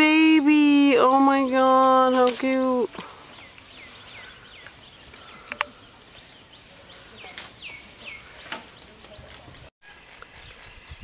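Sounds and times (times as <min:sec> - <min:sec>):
high insect drone: 0:00.0 - 0:11.0
bird chirping: 0:02.8 - 0:11.0.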